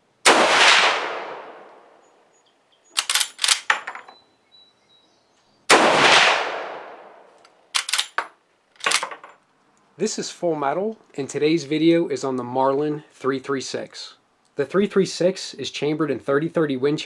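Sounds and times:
rifle shots: 0.2s - 1.8s, 5.7s - 7.2s
rifle lever metallic clacks: 3.0s - 4.2s, 7.4s - 9.3s.

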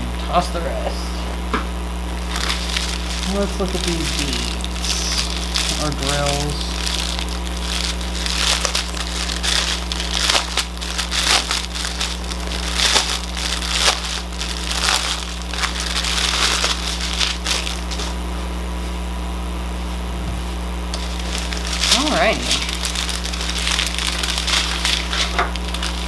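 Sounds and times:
steady low hum: 0.0s - 26.0s
plastic bags crinkling: 2.1s - 18.2s, 20.9s - 26.0s.

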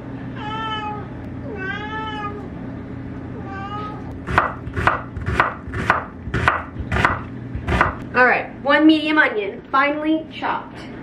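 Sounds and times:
cat meowing: 0.4s - 2.5s, 3.4s - 4.1s
knife chopping on cutting board: 4.3s - 8.0s.

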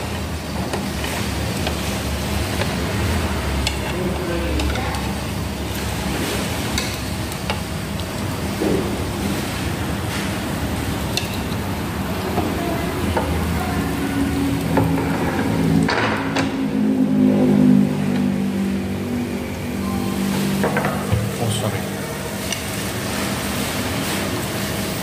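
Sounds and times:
low hum: 14.1s - 22.3s.

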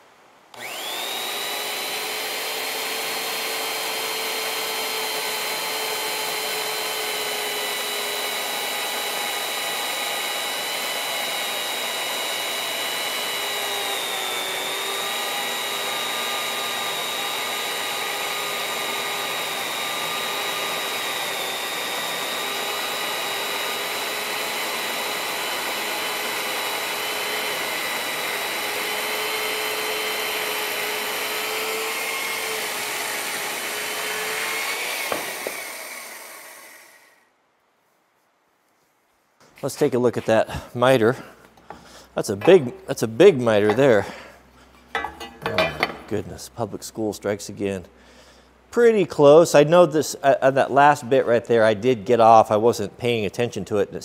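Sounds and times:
chainsaw bar cutting timber: 0.5s - 37.2s, 43.5s - 44.3s, 45.0s - 46.2s.

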